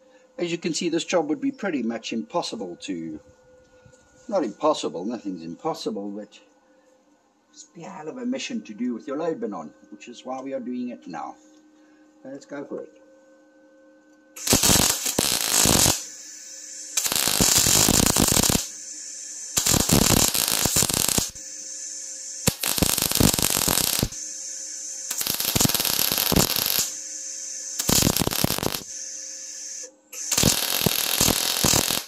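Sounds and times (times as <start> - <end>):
welder hum: 14.4 - 32.0
welding arc crackling: 14.4 - 32.0.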